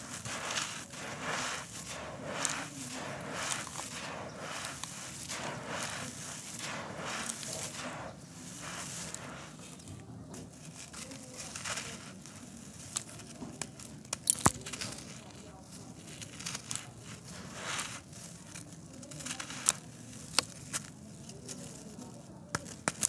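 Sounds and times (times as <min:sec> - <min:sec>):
hands crushing gritty disc: 0:00.0 - 0:23.0
loose grit trickling: 0:00.0 - 0:23.0
pieces cracking off: 0:12.8 - 0:17.0.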